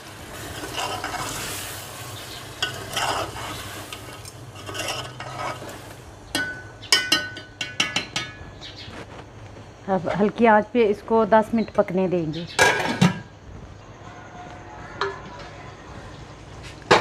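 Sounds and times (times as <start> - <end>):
meat sizzling in a pan: 0.0 - 6.2
metal spoon scraping a pan: 0.3 - 8.4
spoon clinking on metal pan: 6.3 - 8.5.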